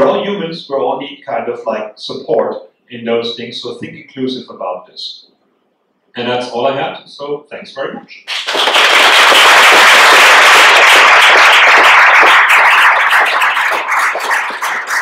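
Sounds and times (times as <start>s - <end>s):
audience applauding: 8.3s - 15.0s.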